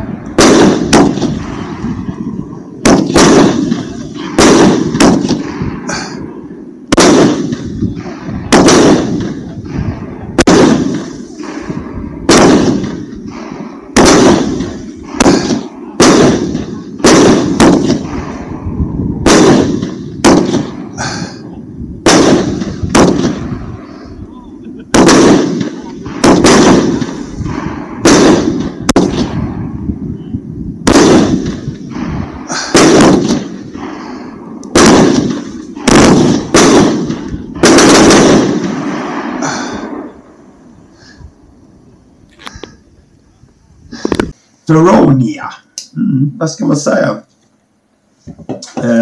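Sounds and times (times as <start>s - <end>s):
firework cake bangs with echo: 0.4s - 1.5s, 2.8s - 6.2s, 6.9s - 18.5s, 19.2s - 21.4s, 22.0s - 23.5s, 24.9s - 29.6s, 30.9s - 34.1s, 34.7s - 39.8s.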